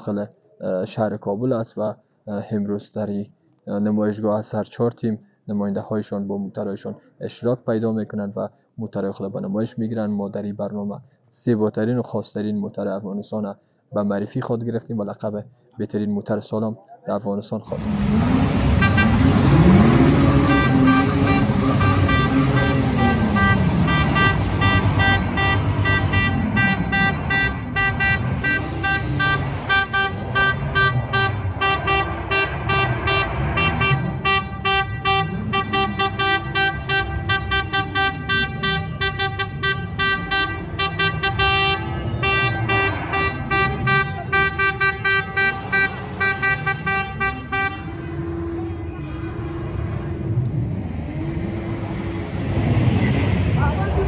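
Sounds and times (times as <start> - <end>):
sports car engine revving: 17.7 - 54.0
steady horn-like tones: 17.8 - 54.0.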